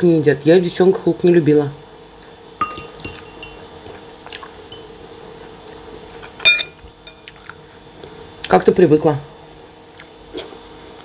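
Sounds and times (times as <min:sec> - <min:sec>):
fork clinking against ceramic bowl: 0:02.6 - 0:03.6, 0:06.4 - 0:07.3.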